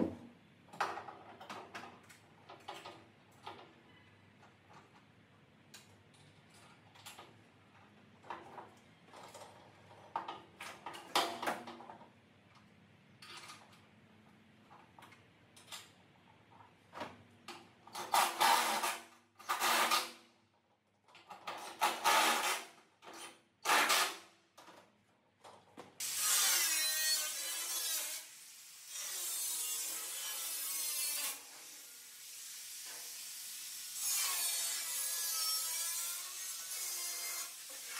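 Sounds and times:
angle grinder cutting sheet metal: 26.0 - 37.9.

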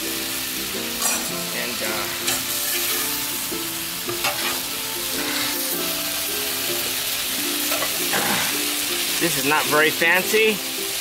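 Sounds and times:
stir fry sizzling on griddle: 0.0 - 11.0
metal spatulas scraping steel: 1.0 - 1.4, 2.2 - 3.0, 4.1 - 5.7.

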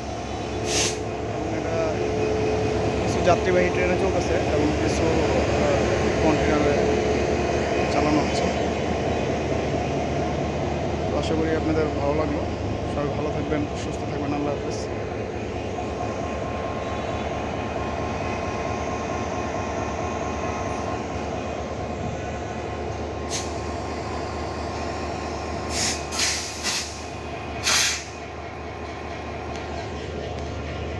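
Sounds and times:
diesel locomotive idling: 0.0 - 30.9
short air hiss: 0.6 - 1.0, 25.7 - 28.2.

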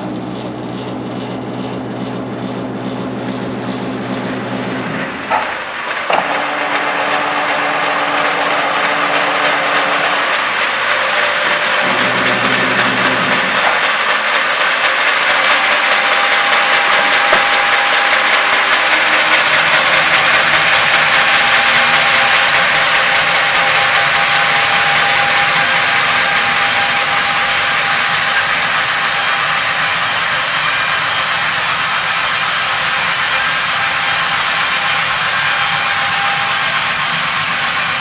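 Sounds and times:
steady machine noise: 0.0 - 38.0
electric motor humming: 1.9 - 29.6
knocks: 5.2 - 7.4.

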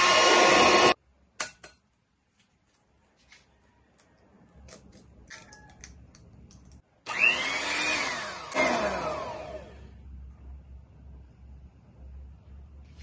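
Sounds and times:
electric hand mixer whining: 0.0 - 1.0, 7.1 - 9.9
egg cracking: 3.6 - 6.9.

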